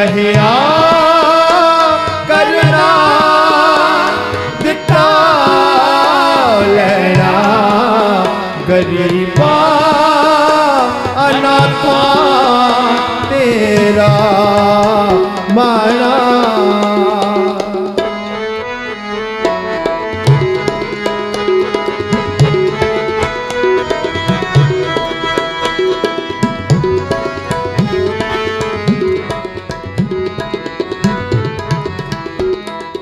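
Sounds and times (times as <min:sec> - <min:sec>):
harmonium chords: 0:00.0 - 0:33.0
tabla rhythm: 0:00.0 - 0:33.0.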